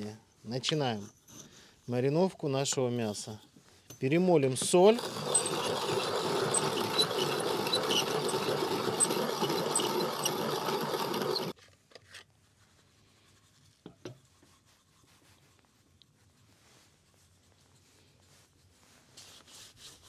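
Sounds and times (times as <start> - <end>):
salt mill grinding: 4.7 - 11.6.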